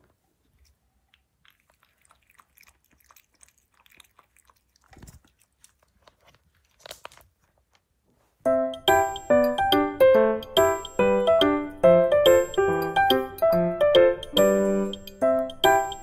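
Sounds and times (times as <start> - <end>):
puppy lapping water: 0.6 - 6.0.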